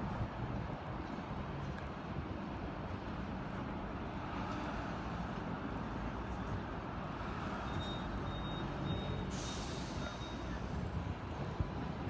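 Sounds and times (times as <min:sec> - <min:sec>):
city road traffic rumble: 0:00.0 - 0:12.0
tram rumbling: 0:08.6 - 0:12.0.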